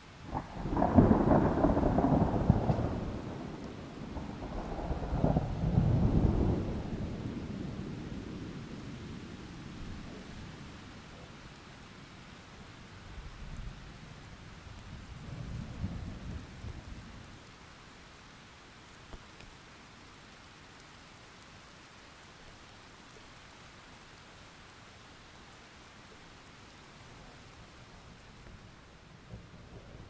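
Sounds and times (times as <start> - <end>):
rain hissing: 0.1 - 30.0
thunder rumbling: 0.3 - 10.4.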